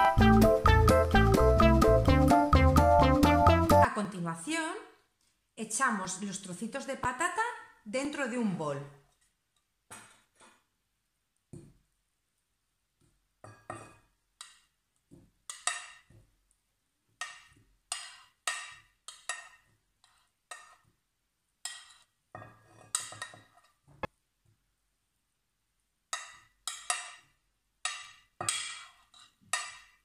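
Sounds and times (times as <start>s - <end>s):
fork clinking on ceramic tray: 21.7s - 23.5s.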